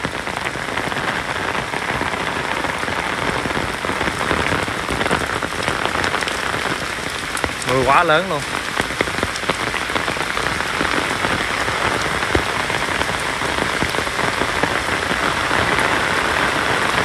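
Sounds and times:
heavy rain pouring: 0.0s - 17.0s.

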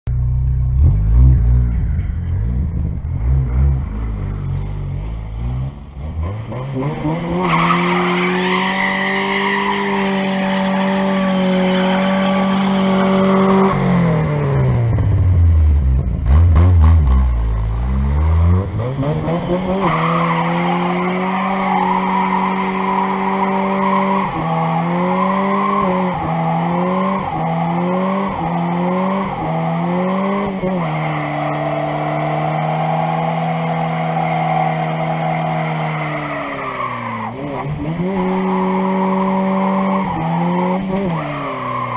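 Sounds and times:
car engine revving: 0.1s - 41.9s.

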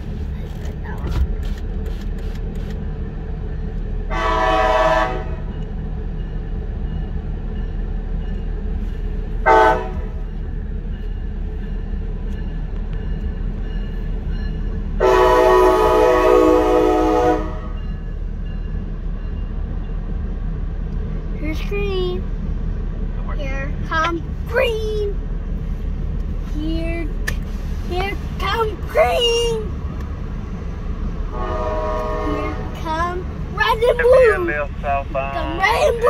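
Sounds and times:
low train rumble: 0.0s - 36.0s
train horn blasts: 4.1s - 5.6s, 9.4s - 10.2s, 15.0s - 17.8s, 31.3s - 32.8s.

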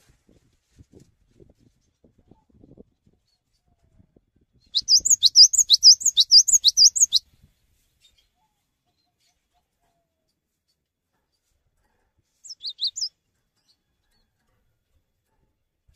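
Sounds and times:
bird singing sharp high notes: 4.8s - 7.2s, 12.5s - 13.1s.

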